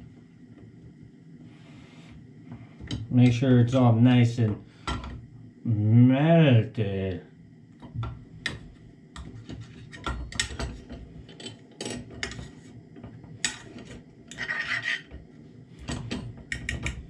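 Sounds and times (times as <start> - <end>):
fork scraping frying pan: 14.3 - 15.1.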